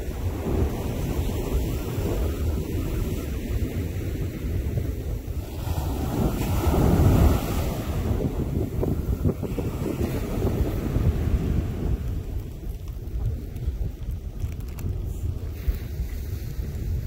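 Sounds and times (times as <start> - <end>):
ocean surf rushing: 0.0 - 17.0
wind buffeting microphone: 0.0 - 17.0.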